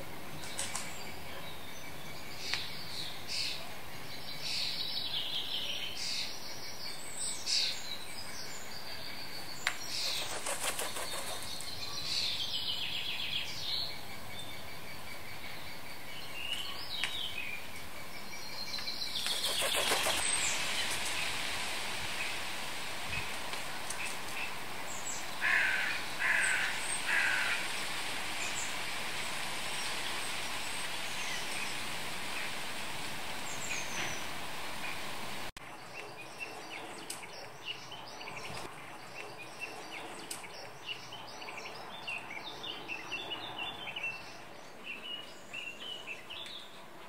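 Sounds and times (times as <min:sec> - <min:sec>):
birds chirping: 0:00.0 - 0:21.4, 0:29.6 - 0:47.0
steady hiss: 0:06.0 - 0:35.5.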